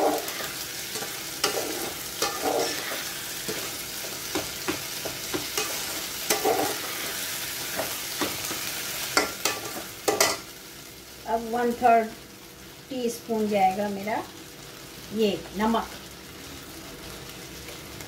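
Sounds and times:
metal spatula scraping pot: 0.0s - 3.7s, 5.5s - 7.2s
rice sizzling in pot: 0.0s - 18.0s.

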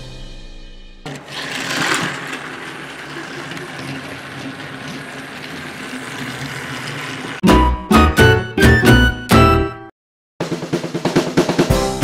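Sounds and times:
toy train motor whirr: 1.1s - 7.4s
toy train wheel rattle: 1.1s - 7.4s.

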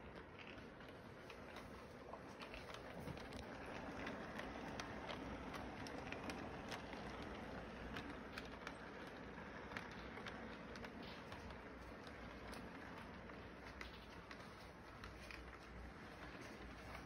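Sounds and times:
model train running noise: 0.0s - 17.0s
wheels clicking on rails: 0.0s - 17.0s.

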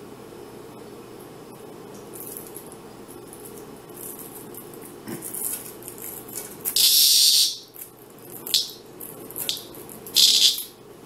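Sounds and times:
cicada buzzing: 6.8s - 7.8s, 8.4s - 8.8s, 9.4s - 10.8s.

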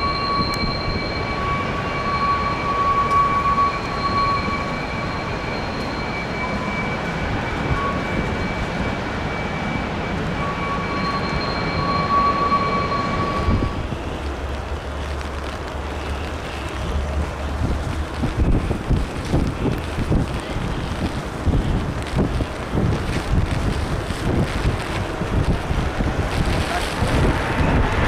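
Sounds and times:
jet engine high whine: 0.0s - 14.8s
jet engines rushing: 0.0s - 14.9s, 15.7s - 28.0s
wind rumble on microphone: 0.0s - 28.0s.

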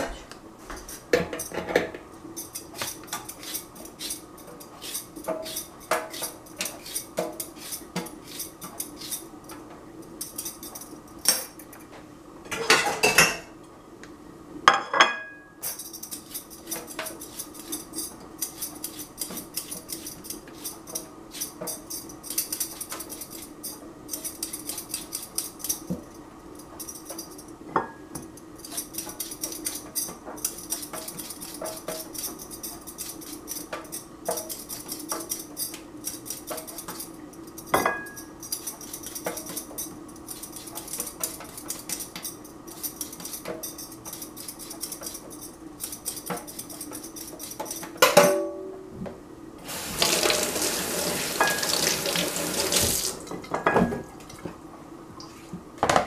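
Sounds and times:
peeler scraping cucumber: 2.5s - 9.3s, 16.0s - 23.5s, 28.6s - 37.1s, 38.5s - 47.9s.

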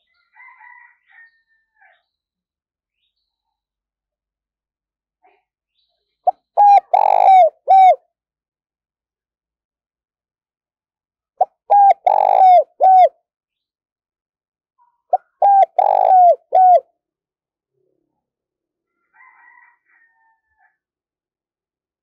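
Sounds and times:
dove cooing: 6.3s - 8.0s, 11.4s - 13.1s, 15.1s - 16.8s.

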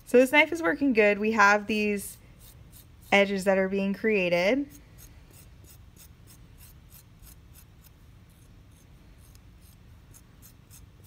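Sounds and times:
knife scratching soft clay: 2.3s - 3.4s, 4.6s - 11.0s.

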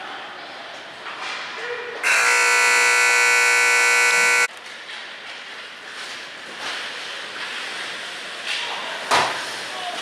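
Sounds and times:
game buzzer blaring: 2.0s - 4.5s.

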